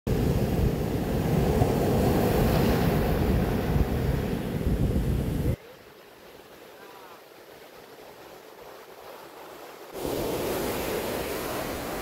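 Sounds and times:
wind buffeting microphone: 0.1 - 5.6.

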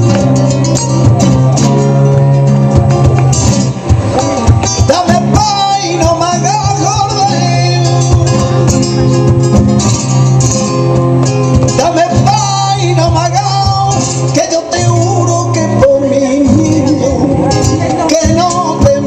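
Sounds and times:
acoustic guitars strumming: 0.0 - 19.0
man singing: 4.1 - 9.4, 11.7 - 19.0.

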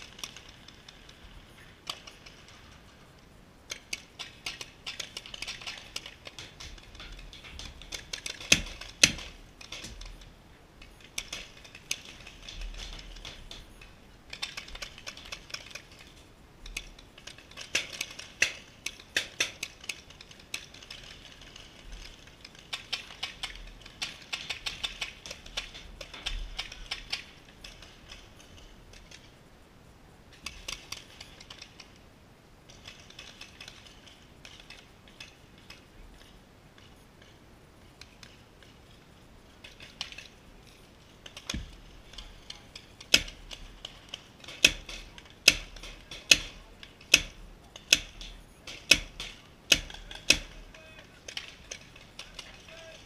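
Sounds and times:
paintball markers firing: 41.3 - 53.0.

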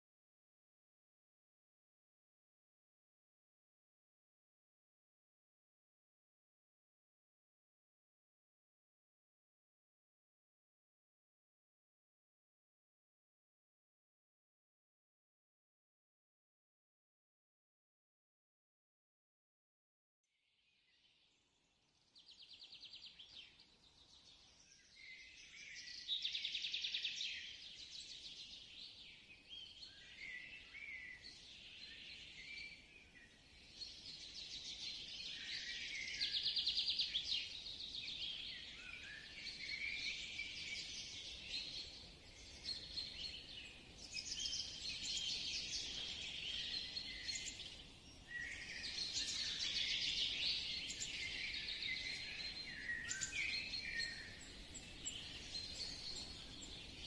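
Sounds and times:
small birds chirping and trilling: 20.6 - 57.0.

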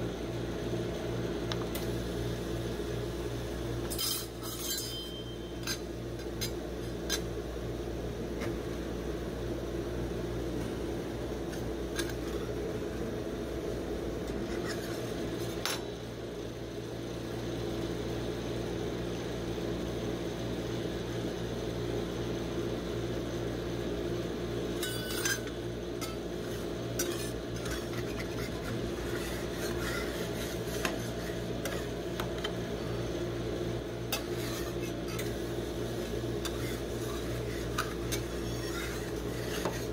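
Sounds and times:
machine low hum: 0.0 - 39.9
metal spatula scraping steel plate: 3.9 - 7.2, 24.8 - 32.5, 34.1 - 35.4, 36.4 - 39.9.

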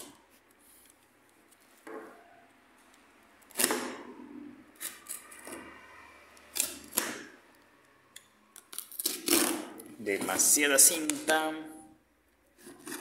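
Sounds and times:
box cutter slicing packing tape: 3.5 - 4.1, 8.7 - 9.9, 12.6 - 13.0.

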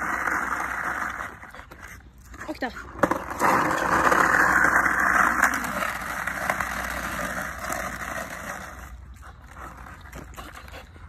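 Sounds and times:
skateboard wheels on asphalt: 0.0 - 11.0.

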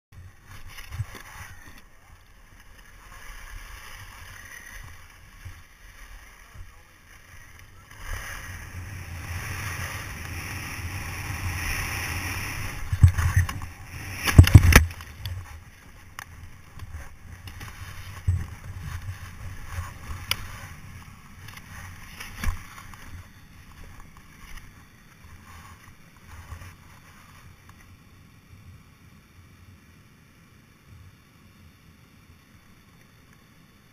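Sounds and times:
skis running over snow: 0.2 - 28.0
wind rushing over microphone: 7.7 - 23.9.

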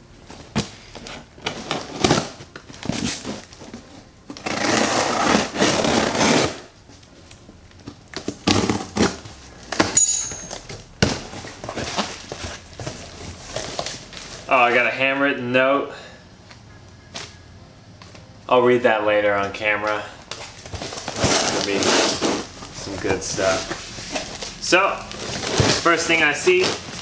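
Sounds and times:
packing tape ripping: 0.5 - 3.7, 4.3 - 6.8, 7.8 - 10.0, 20.3 - 27.0
cardboard flaps tearing: 4.4 - 6.7, 8.2 - 9.3, 20.6 - 27.0.

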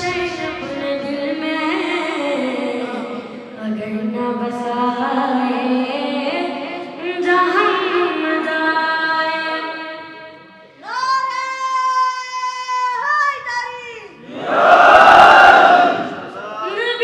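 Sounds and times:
boy singing through microphone: 0.0 - 13.8.

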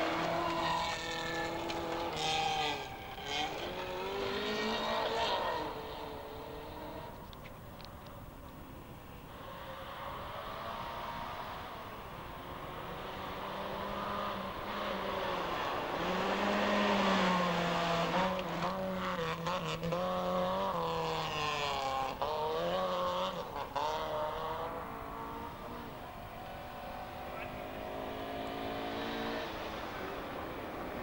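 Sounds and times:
tyres on gravel: 0.0 - 5.9
rally car at full throttle: 0.0 - 7.4, 9.1 - 31.0.

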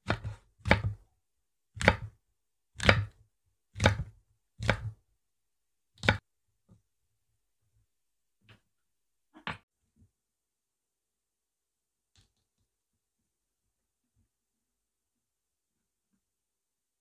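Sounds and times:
knife cutting on wooden board: 0.0 - 1.0, 1.8 - 2.2, 2.8 - 3.2, 3.8 - 5.0.

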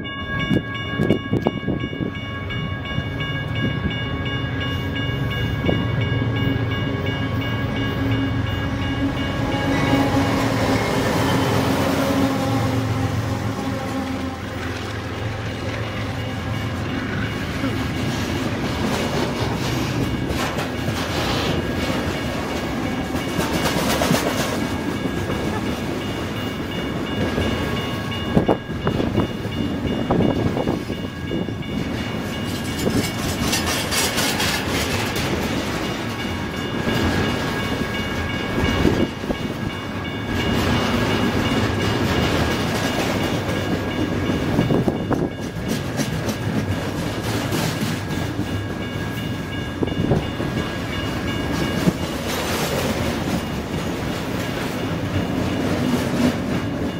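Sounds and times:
train wheels rumbling: 0.0 - 56.9
wheels clacking over rail joints: 13.4 - 27.9, 31.8 - 49.2.

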